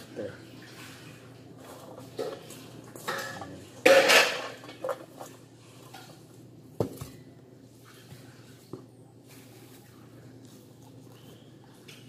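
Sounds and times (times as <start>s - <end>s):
steel bowl clattering: 1.7s - 5.1s.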